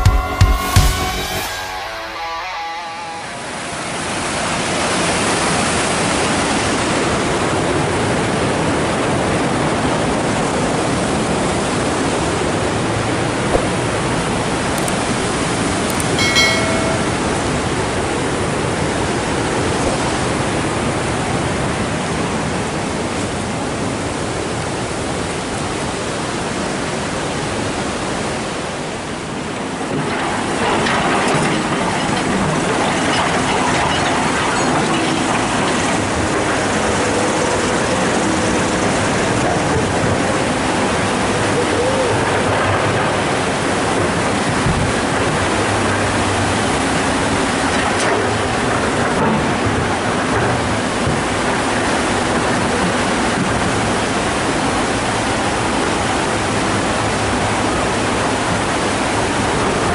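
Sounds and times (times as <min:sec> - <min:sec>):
pitched chime: 0:00.0 - 0:03.5, 0:15.9 - 0:17.8
river rushing over rocks: 0:01.4 - 0:59.9.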